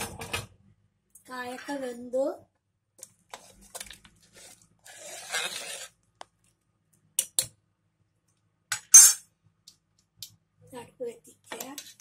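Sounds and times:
ladle scraping pot: 0:04.3 - 0:06.0.

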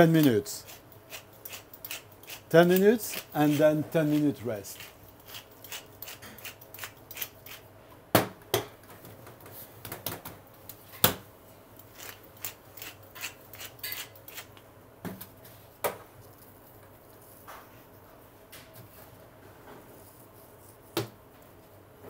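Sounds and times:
pepper mill grinding: 0:00.7 - 0:07.6, 0:11.9 - 0:14.6.

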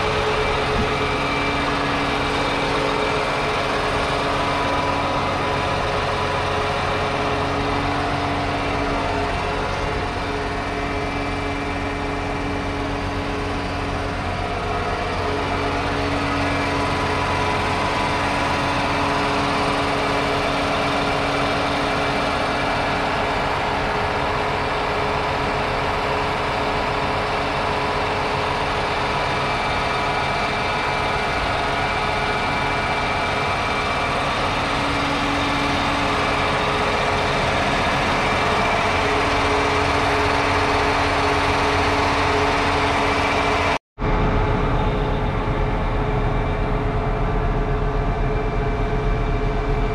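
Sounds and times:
tractor diesel engine drone: 0:00.0 - 0:49.9.

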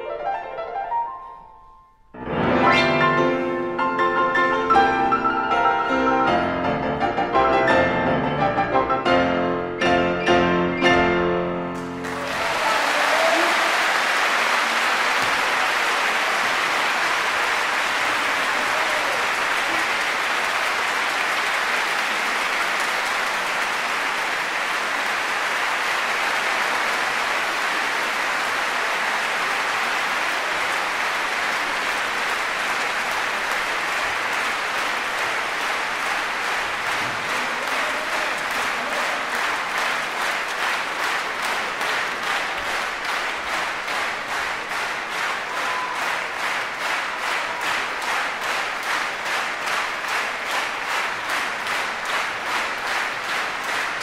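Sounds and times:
audience applauding: 0:11.8 - 0:54.0.

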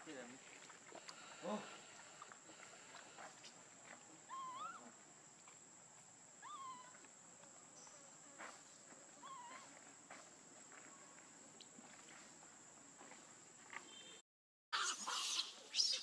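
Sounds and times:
monkey coo calls: 0:04.2 - 0:05.0, 0:06.4 - 0:07.0, 0:09.2 - 0:09.8, 0:14.8 - 0:16.0
high-pitched insect buzz: 0:06.4 - 0:11.3.

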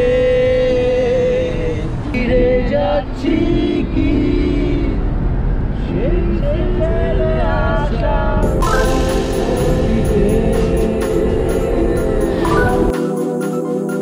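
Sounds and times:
car rumbling on road: 0:00.3 - 0:08.5
person singing: 0:08.4 - 0:14.0.

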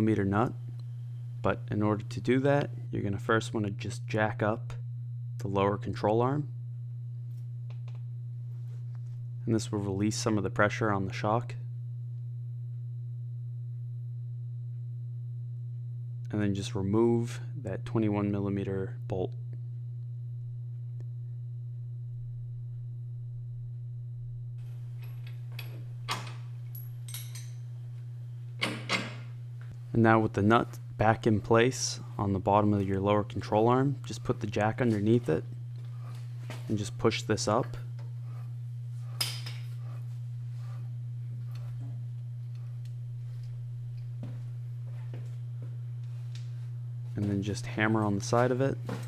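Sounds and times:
steady low hum: 0:00.0 - 0:49.0
wrench clinking on metal: 0:25.0 - 0:27.6.

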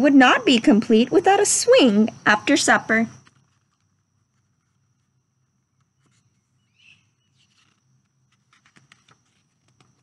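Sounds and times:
faint chirp: 0:05.4 - 0:08.0.

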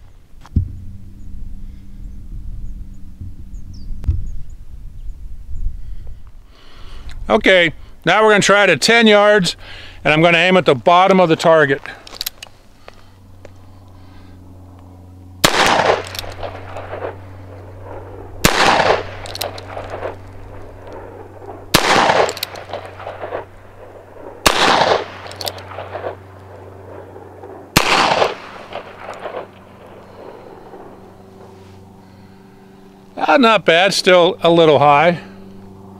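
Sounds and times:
revolver gunshots: 0:15.4 - 0:32.3.

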